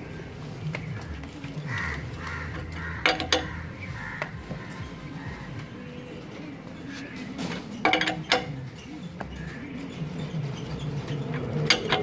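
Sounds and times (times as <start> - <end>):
wheel brace clanking on wheel nuts: 2.4 - 4.9, 7.0 - 12.0.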